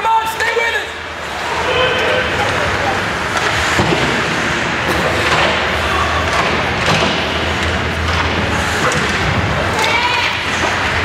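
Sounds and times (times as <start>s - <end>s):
faint voices: 0.0s - 3.8s.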